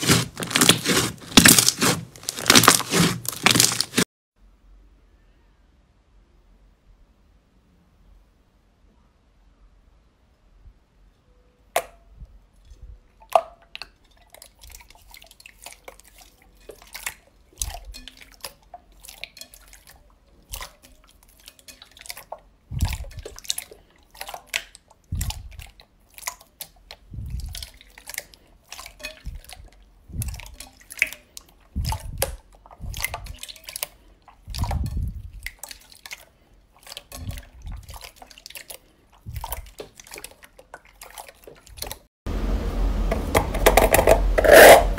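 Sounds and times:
slime squelching and popping: 0:00.0 - 0:04.1, 0:13.2 - 0:42.1.

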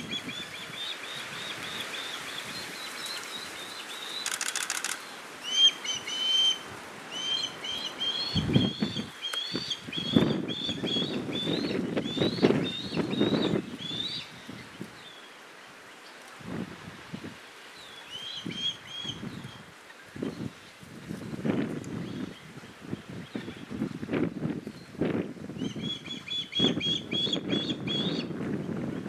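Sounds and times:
wind gusts: 0:00.0 - 0:29.0.

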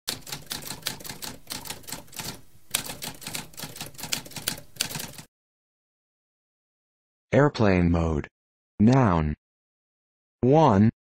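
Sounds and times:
typewriter keys clacking: 0:00.1 - 0:05.3.

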